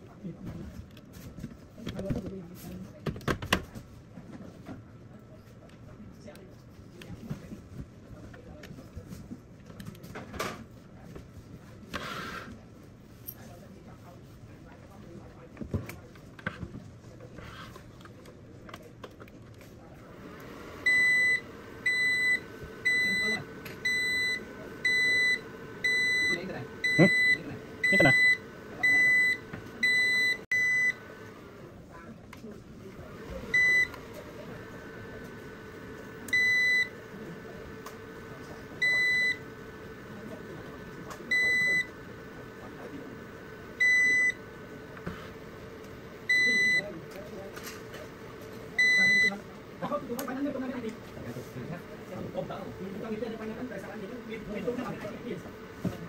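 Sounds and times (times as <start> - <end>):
high alarm beeps: 20.9 - 31.0, 38.8 - 39.4, 46.3 - 46.9, 48.8 - 49.4.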